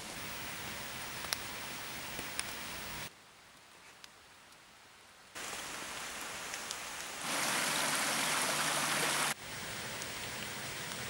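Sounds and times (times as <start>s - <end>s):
rain hissing: 0.0s - 11.0s.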